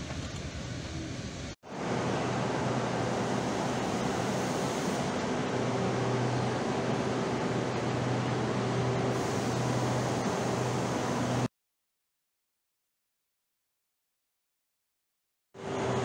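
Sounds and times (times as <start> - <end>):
station platform hum and hiss: 0.0 - 11.5, 15.6 - 16.0
train running: 0.0 - 11.5.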